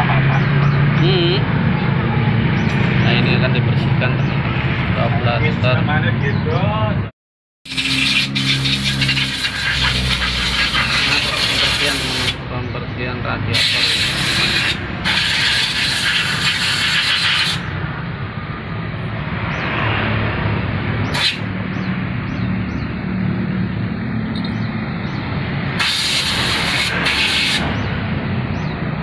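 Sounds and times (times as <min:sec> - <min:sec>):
compressed air blowgun hissing: 0:07.7 - 0:12.4, 0:13.6 - 0:17.7, 0:21.1 - 0:21.5, 0:25.8 - 0:27.7.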